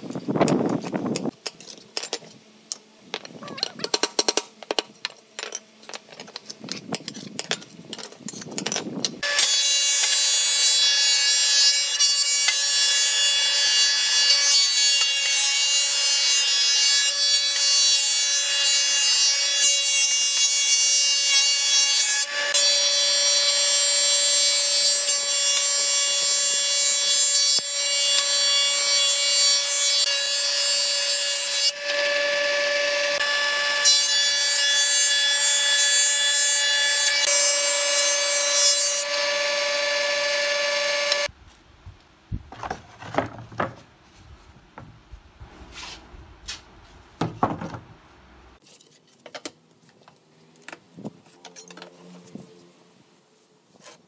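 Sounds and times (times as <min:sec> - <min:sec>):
planer whining and cutting: 0:39.0 - 0:41.3
wood knocking: 0:47.2 - 0:47.9.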